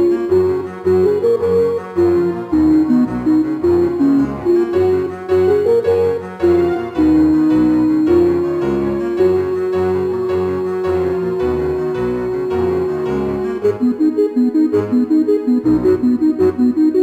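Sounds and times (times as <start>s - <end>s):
keyboard music: 0.0s - 17.0s.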